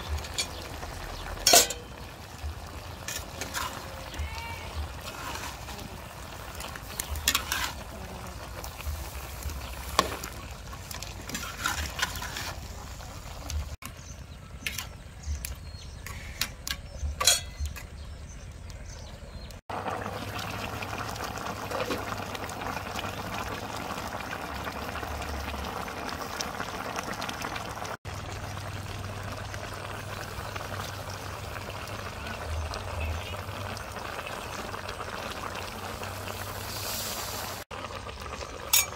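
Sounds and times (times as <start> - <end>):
curry bubbling in a wok: 0.0 - 16.0, 19.6 - 38.9
sharp clicks and pops: 14.6 - 18.0.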